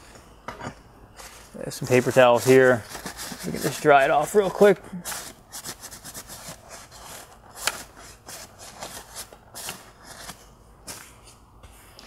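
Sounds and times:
paper towel rubbing on metal: 1.7s - 4.7s.

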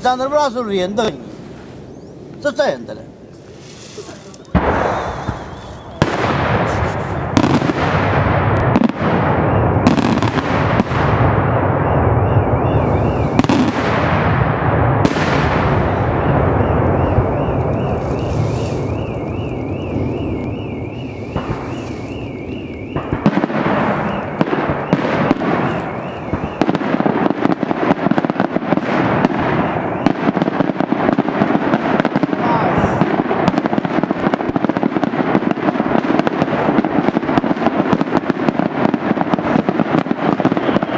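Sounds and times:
fireworks bursts rattling: 0.0s - 1.7s, 2.3s - 40.9s
fireworks low rumble: 0.0s - 40.9s
sharp firework bangs: 4.0s - 40.9s
warbling firework whistle: 4.7s - 7.7s, 8.8s - 13.8s, 15.0s - 28.2s, 29.1s - 30.6s, 39.9s - 40.9s.

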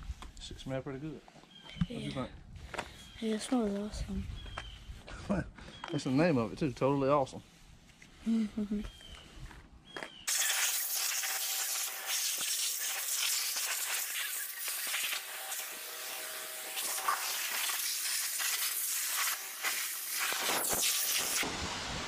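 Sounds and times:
pressure washer spray hissing: 10.3s - 22.0s.

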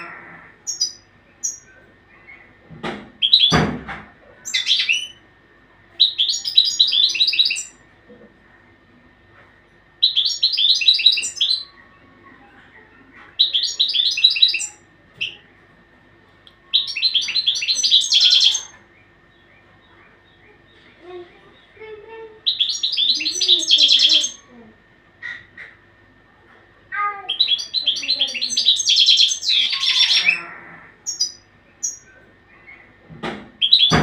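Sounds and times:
goldfinch twittering song: 22.4s - 24.4s.

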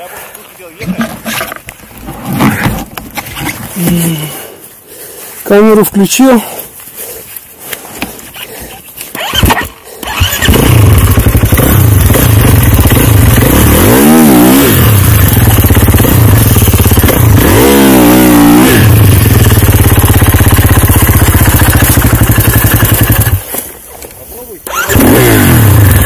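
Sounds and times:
snowbike engine revving: 8.3s - 23.7s, 24.6s - 26.0s.

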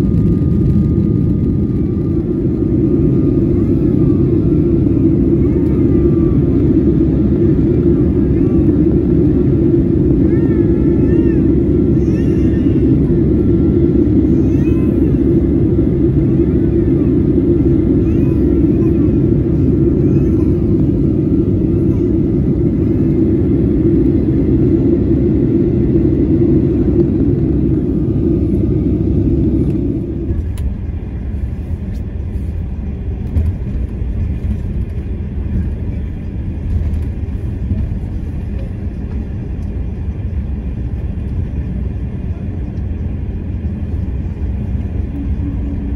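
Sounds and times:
airliner cabin jet engine noise: 0.0s - 45.9s
vehicle tyres and engine rumble: 0.0s - 45.9s.

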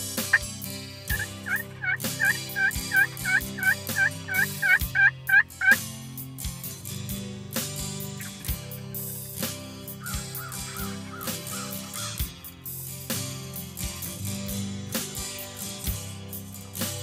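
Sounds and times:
wild turkey yelping: 1.1s - 5.8s, 10.0s - 12.2s.

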